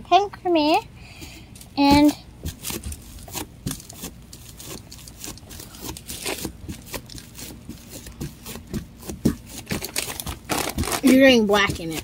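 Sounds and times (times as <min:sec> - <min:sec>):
plastic wrap crinkling: 0:02.4 - 0:12.0.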